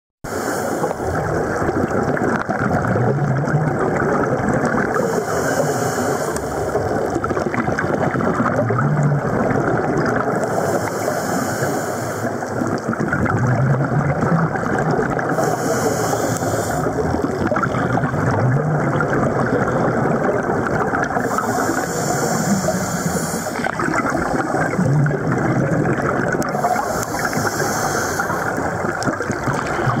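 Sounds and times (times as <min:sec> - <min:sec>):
regulator inhalation hiss: 0:00.3 - 0:01.2, 0:05.0 - 0:06.8, 0:10.4 - 0:12.5, 0:15.3 - 0:17.0, 0:21.2 - 0:24.7, 0:26.5 - 0:28.8
exhale bubbles rumbling: 0:00.3 - 0:30.0
underwater crackle and hiss: 0:00.3 - 0:30.0.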